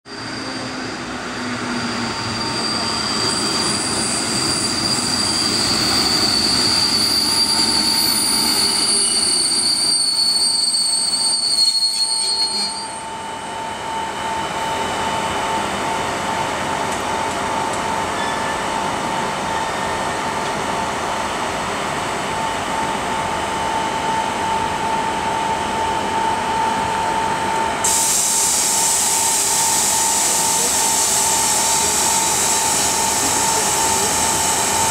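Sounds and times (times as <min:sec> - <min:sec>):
train wheels and brakes squealing: 0:00.1 - 0:20.5, 0:22.4 - 0:34.9
train equipment whine: 0:00.1 - 0:34.9
loud high hiss: 0:27.8 - 0:34.8.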